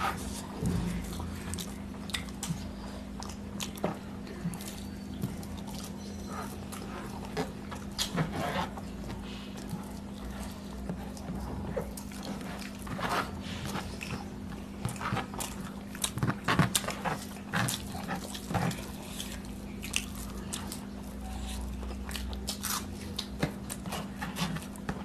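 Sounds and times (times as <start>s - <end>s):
wet chewing and lip smacks: 1.1s - 8.2s, 13.7s - 24.8s.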